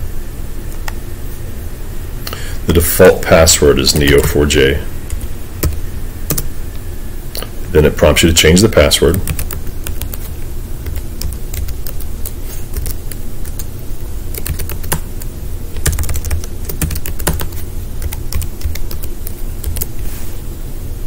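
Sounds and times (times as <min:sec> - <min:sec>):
low steady hum: 0:00.0 - 0:21.0
computer keyboard typing: 0:03.9 - 0:04.4, 0:05.1 - 0:06.5, 0:09.0 - 0:13.7, 0:14.3 - 0:20.0.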